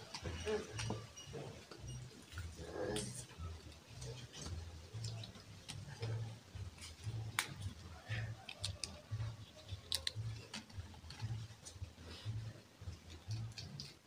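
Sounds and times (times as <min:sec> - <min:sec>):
flowers snapping and rustling: 0:06.8 - 0:11.8.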